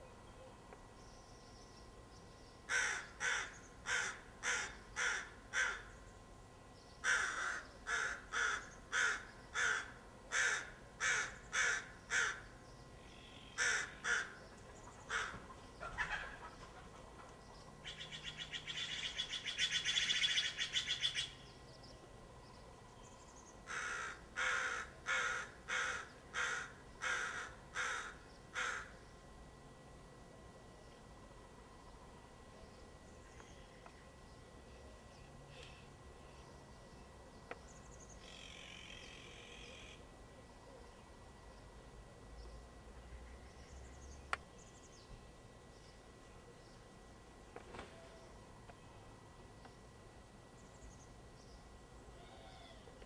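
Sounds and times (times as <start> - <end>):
crow rattling call: 2.7 - 5.9, 7.0 - 12.4, 13.6 - 14.4, 15.0 - 16.6, 23.7 - 29.0
crows cawing: 2.7 - 5.9, 7.0 - 12.5, 13.5 - 16.6, 23.6 - 29.0.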